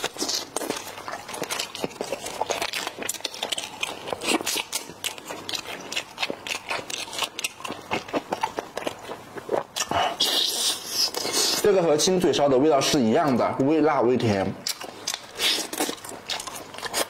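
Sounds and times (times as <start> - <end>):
snack packets crinkling and tearing: 0.0 - 9.0
chewing: 0.0 - 11.6, 14.6 - 17.0.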